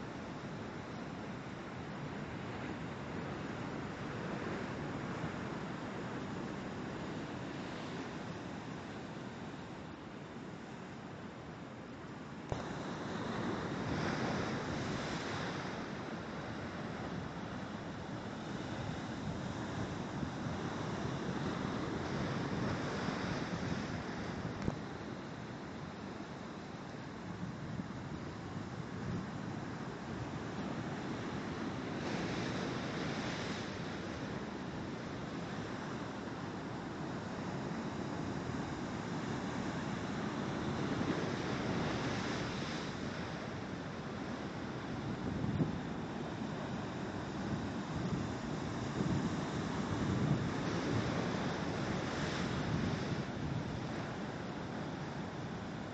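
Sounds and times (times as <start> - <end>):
ocean surf breaking on rocks: 12.5 - 55.9.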